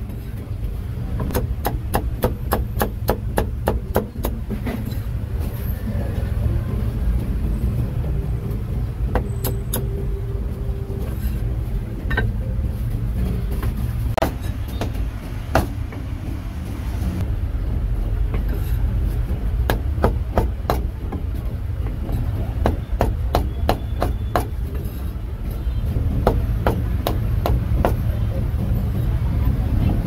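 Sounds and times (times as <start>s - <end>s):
cleaver chopping on wooden block: 1.2s - 4.4s, 19.6s - 21.2s, 22.6s - 24.6s, 26.2s - 28.0s.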